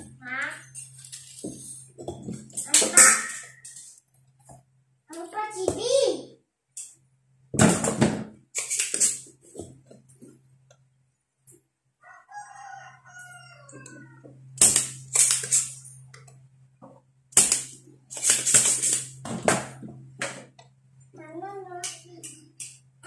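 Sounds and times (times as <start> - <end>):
rooster crowing: 12.0 - 14.3.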